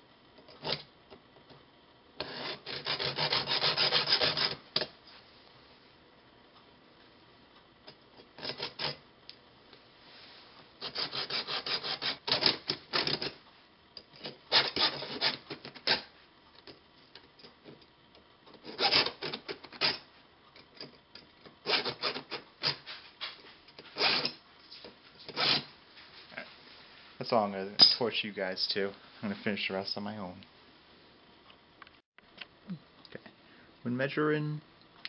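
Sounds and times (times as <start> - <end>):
hacksaw cutting metal rod: 2.2 - 4.6, 8.4 - 9.0, 10.8 - 13.4, 14.2 - 16.1, 18.6 - 20.0, 21.6 - 22.8, 24.0 - 24.4, 25.3 - 25.7.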